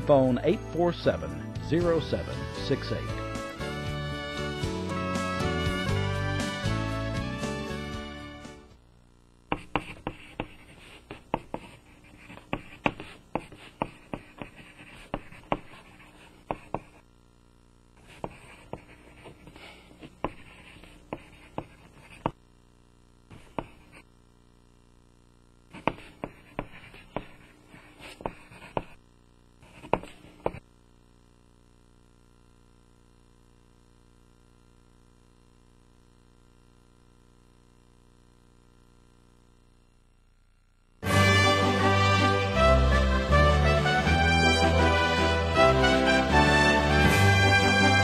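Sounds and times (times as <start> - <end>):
pen scratching on paper: 9.5 - 17.0, 18.0 - 22.4, 23.3 - 24.1, 25.7 - 29.0, 29.6 - 30.6.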